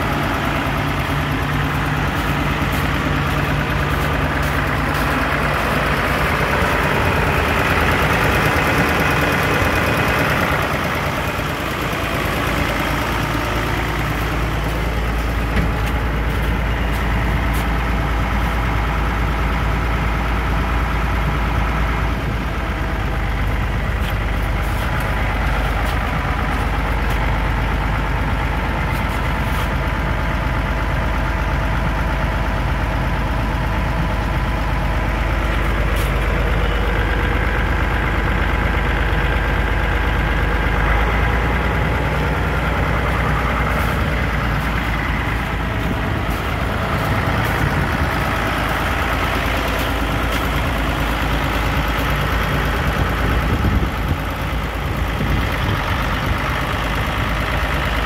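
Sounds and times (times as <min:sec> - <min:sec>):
tractor engine idling: 0:00.0 - 0:58.0
deep low rumble: 0:33.8 - 0:56.3.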